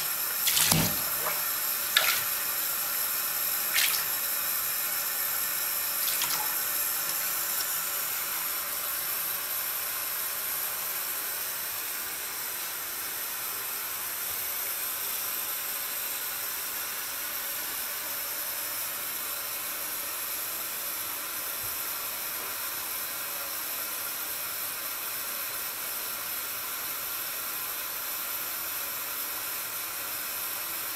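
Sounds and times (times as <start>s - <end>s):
water splashing into bathtub: 0.1s - 2.8s, 3.6s - 4.4s, 6.0s - 7.7s.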